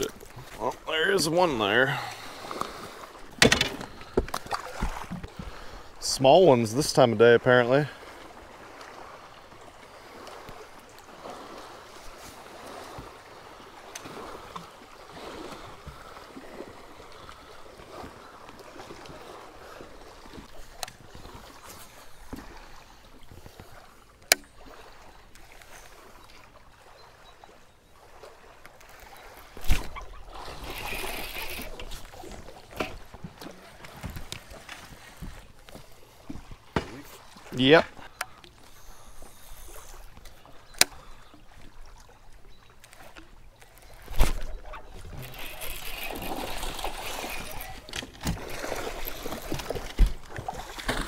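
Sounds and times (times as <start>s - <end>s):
small waves lapping against hull: 0.0s - 51.0s.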